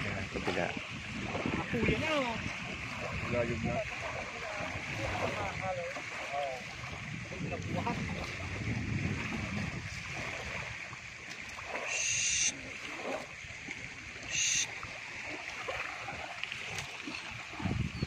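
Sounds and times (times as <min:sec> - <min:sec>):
small waves washing on beach: 0:00.0 - 0:18.0
short high-pitched sounds: 0:11.9 - 0:12.5, 0:14.3 - 0:14.7.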